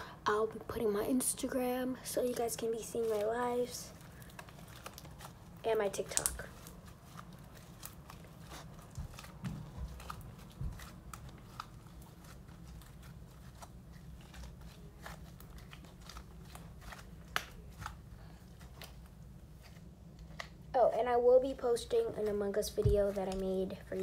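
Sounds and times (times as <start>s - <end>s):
slime squishing and popping: 4.2s - 18.0s.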